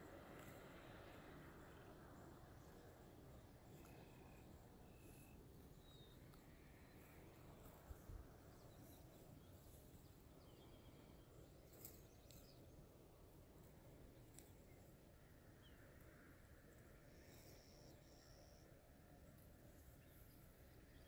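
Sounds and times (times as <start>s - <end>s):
faint high chirps: 0.4s - 12.7s, 15.6s - 18.8s.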